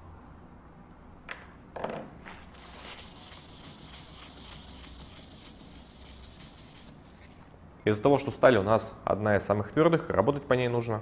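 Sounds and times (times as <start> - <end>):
paper towel rubbing on stone: 2.5 - 7.0.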